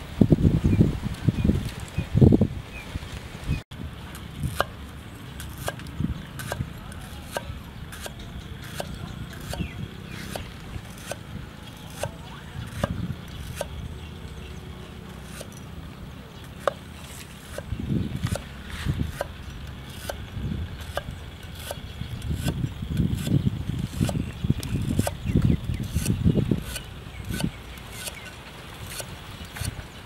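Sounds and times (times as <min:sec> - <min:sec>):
cleaver chopping on wooden block: 0:11.9 - 0:13.8.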